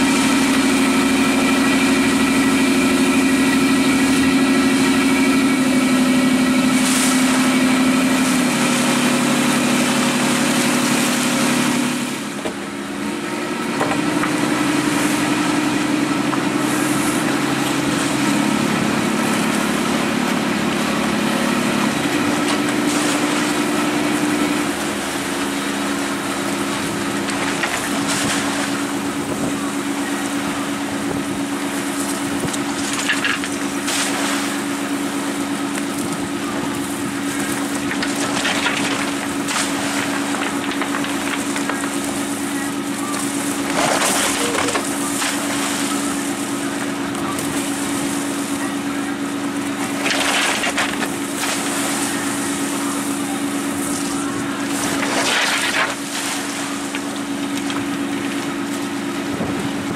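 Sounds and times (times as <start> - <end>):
boat engine running: 0.0 - 59.9
water noise: 0.0 - 59.9
wind noise: 59.2 - 59.9.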